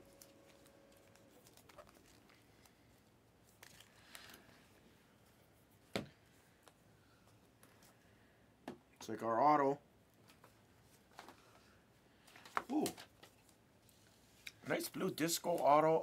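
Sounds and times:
cards clicking and rustling: 0.1 - 2.8, 3.5 - 4.5.

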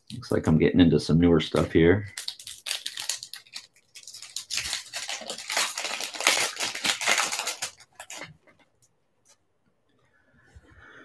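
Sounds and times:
foil wrapper crinkling and tearing: 1.5 - 8.5.

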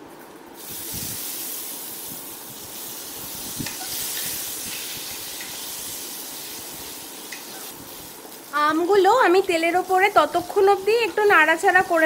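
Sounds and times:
mango slices sizzling in hot oil: 0.6 - 12.0.

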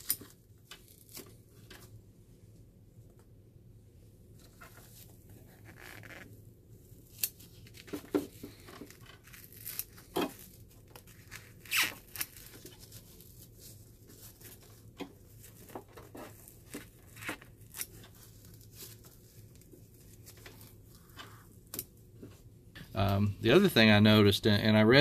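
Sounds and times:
rubber tearing and crackling: 0.0 - 1.4, 4.6 - 6.4, 7.0 - 21.9.

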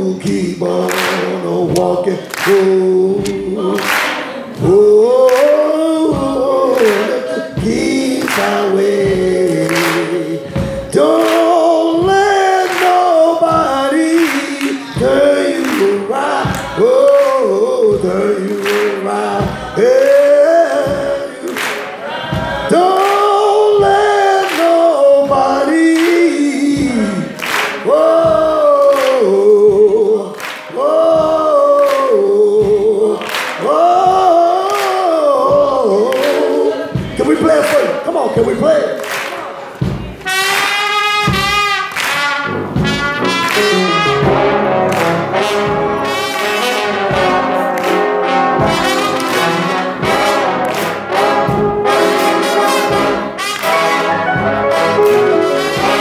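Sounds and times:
men singing in harmony: 0.0 - 37.9, 43.2 - 56.0
sharp hand claps: 0.8 - 7.2, 8.2 - 8.7, 9.4 - 17.5, 18.4 - 19.2, 21.4 - 22.0, 22.8 - 23.4, 24.4 - 24.9, 25.9 - 29.3, 30.3 - 30.8, 31.7 - 32.2, 33.2 - 33.8, 34.6 - 35.1, 36.1 - 36.5, 38.9 - 44.3, 44.9 - 45.7, 46.4 - 51.6, 52.7 - 53.9.

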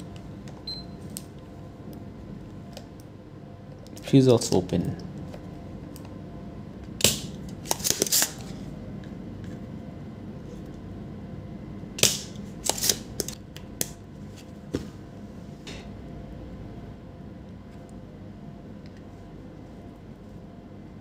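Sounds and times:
low hum: 13.3 - 21.0.

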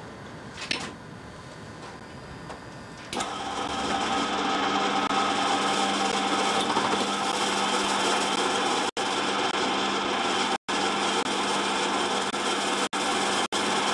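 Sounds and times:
drill press humming: 3.1 - 13.9
drill bit cutting metal: 3.2 - 13.9.

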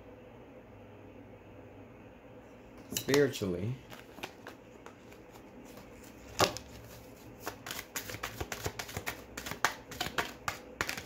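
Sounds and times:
cards being shuffled: 3.8 - 11.0.

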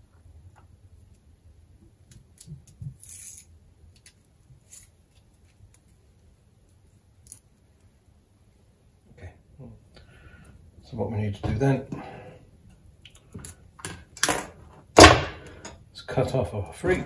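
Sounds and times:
wire clicking and scraping: 2.0 - 7.9.

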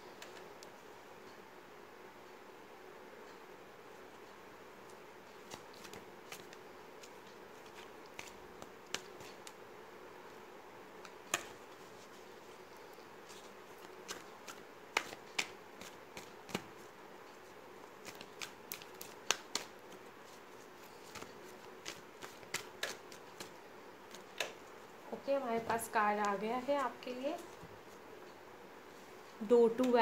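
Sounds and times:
faint steady hum: 0.0 - 30.0
cards being shuffled: 5.3 - 9.6, 13.2 - 16.8, 17.8 - 24.7.

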